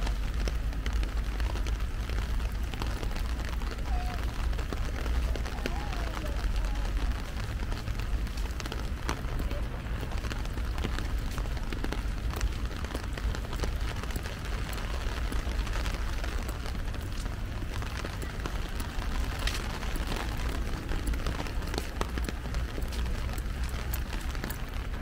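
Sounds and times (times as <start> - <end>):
rain on an umbrella: 0.0 - 25.0.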